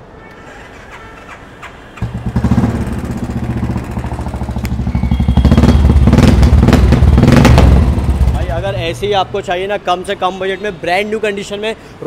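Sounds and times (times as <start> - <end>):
motorcycle engine idling and revving: 2.0 - 9.6.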